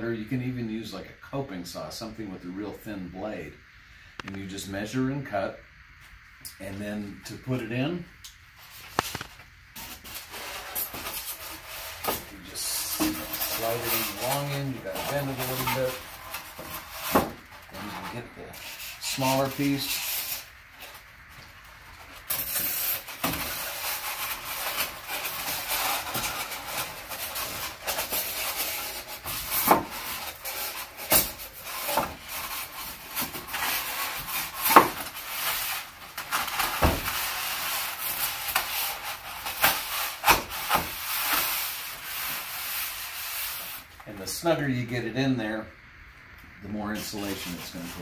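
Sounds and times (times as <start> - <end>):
foam board scraping metal door: 8.6 - 44.4, 47.0 - 48.0.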